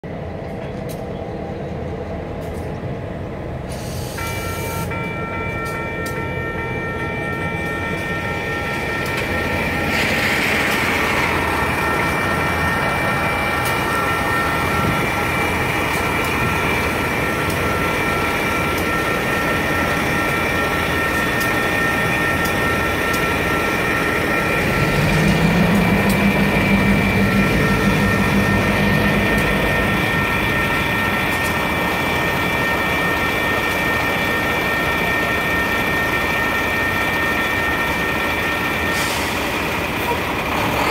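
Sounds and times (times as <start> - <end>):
diesel locomotives idling: 0.0 - 40.9
railroad crossing bell ringing: 4.0 - 40.9
locomotive engine throttling up: 9.0 - 36.7.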